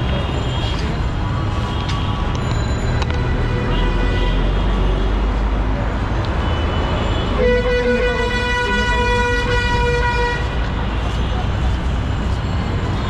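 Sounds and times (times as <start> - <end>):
low traffic rumble: 0.0 - 13.0
vehicle horn blast: 7.1 - 10.5.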